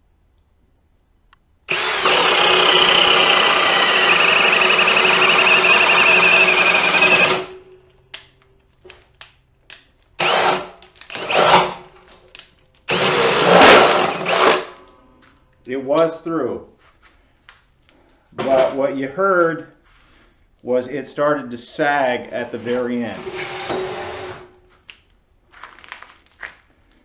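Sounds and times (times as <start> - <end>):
cordless drill boring through wood: 1.7 - 7.5, 10.2 - 11.9, 12.9 - 14.7, 23.2 - 24.5.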